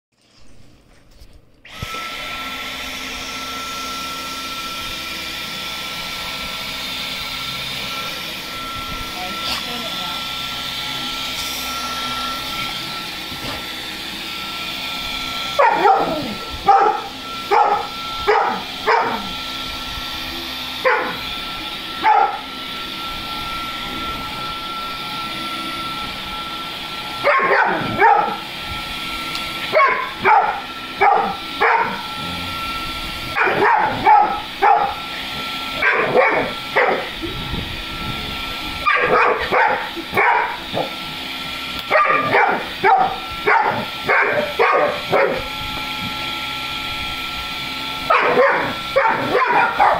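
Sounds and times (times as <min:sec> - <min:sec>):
vacuum cleaner whine: 0:00.2 - 0:49.9
dog barking: 0:15.6 - 0:19.3, 0:20.8 - 0:21.2, 0:22.0 - 0:22.4, 0:27.2 - 0:28.4, 0:29.7 - 0:32.0, 0:33.4 - 0:35.0, 0:35.8 - 0:37.1, 0:38.8 - 0:40.9, 0:41.9 - 0:45.5, 0:48.1 - 0:49.9.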